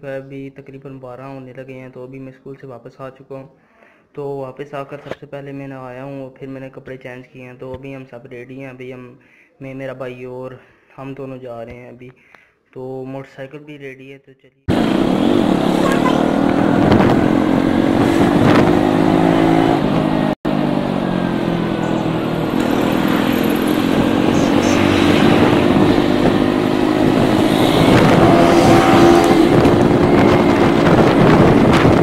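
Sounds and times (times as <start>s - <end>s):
motorcycle engine running: 14.7s - 32.0s.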